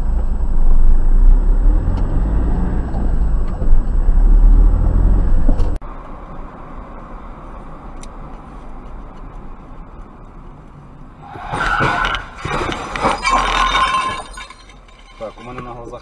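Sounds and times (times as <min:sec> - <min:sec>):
car road and engine noise: 0:00.0 - 0:16.0.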